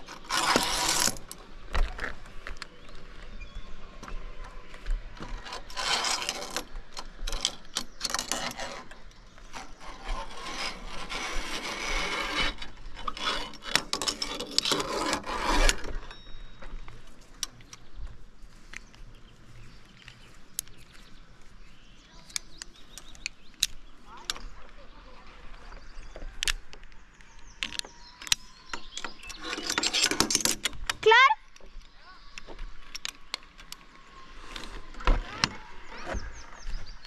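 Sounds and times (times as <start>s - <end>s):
rough rubbing and scraping: 0.0s - 2.6s, 5.1s - 16.6s, 25.2s - 31.3s.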